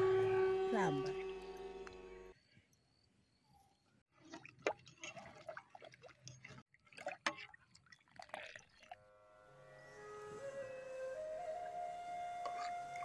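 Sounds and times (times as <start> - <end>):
soft music: 0.0 - 2.3, 9.1 - 13.0
liquid sloshing and dripping: 4.1 - 9.0.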